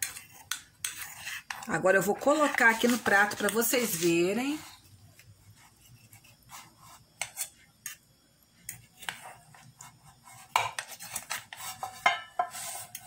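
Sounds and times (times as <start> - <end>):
metal spatula scraping a frying pan: 0.0 - 4.8, 9.0 - 13.0.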